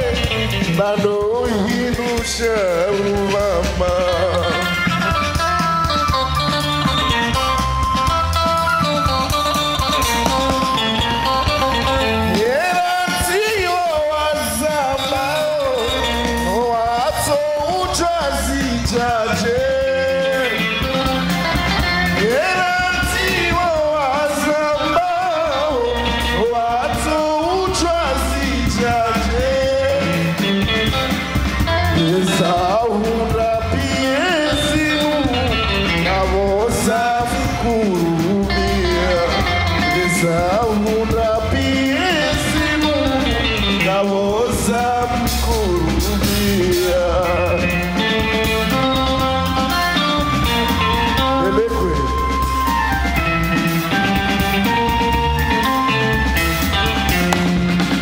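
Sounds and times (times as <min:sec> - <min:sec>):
man singing into a microphone: 0:00.0 - 0:05.4, 0:11.8 - 0:52.8
drums: 0:00.0 - 0:58.0
electric guitar: 0:00.0 - 0:58.0
keyboard: 0:00.0 - 0:58.0
steady bass: 0:00.0 - 0:58.0.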